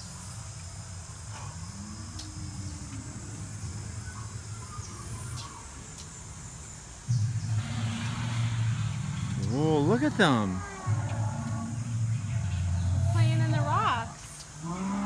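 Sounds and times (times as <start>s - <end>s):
faint birds: 0.0s - 15.0s
faint insects: 0.0s - 15.0s
loud low dinosaur growl: 7.1s - 15.0s.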